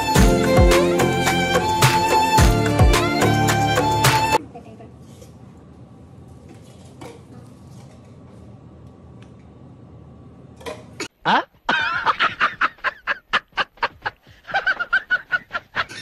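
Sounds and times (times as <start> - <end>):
man laughing hard: 11.2 - 16.0.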